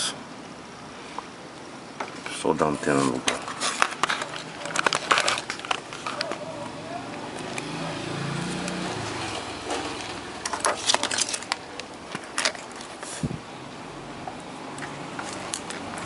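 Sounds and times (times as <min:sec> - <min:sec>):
faint steady hiss: 0:00.0 - 0:08.8.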